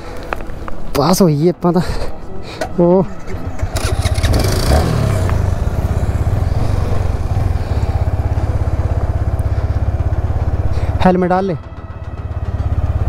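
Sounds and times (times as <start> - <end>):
motorcycle engine idling: 3.2 - 13.0.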